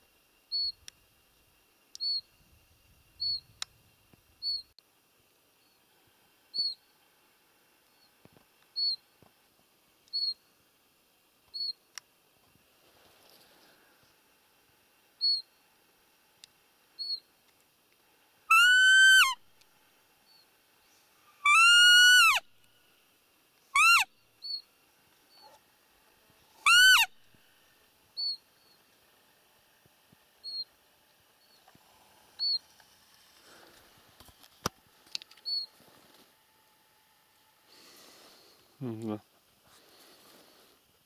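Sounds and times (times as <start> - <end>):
faint high chirps: 0.4 - 0.9, 1.9 - 3.7, 4.4 - 4.8, 6.5 - 7.0, 7.8 - 9.3, 10.0 - 10.7, 11.4 - 12.0, 15.2 - 15.6, 17.0 - 17.4, 20.2 - 25.6, 26.5 - 29.0, 30.4 - 30.8, 32.4 - 32.7, 35.3 - 35.8
deer call whistled squeaks: 18.5 - 19.4, 21.3 - 22.4, 23.7 - 24.6, 26.6 - 27.2, 35.4 - 35.7.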